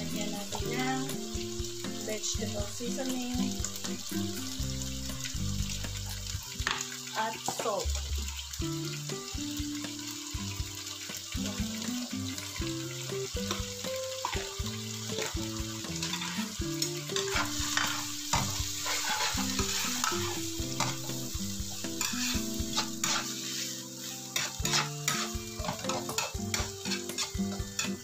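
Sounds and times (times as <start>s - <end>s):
green beans sizzling in a wok: 0.0s - 28.0s
scraping and tossing in a wok: 13.5s - 28.0s.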